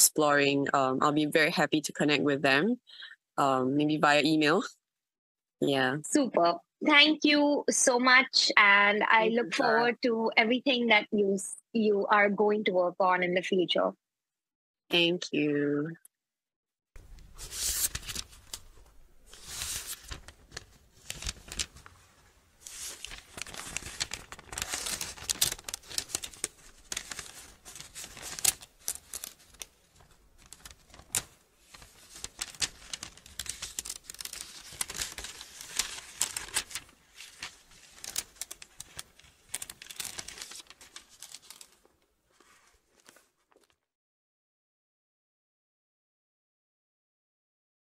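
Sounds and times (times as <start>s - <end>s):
paper crinkling and rustling: 17.0s - 43.9s.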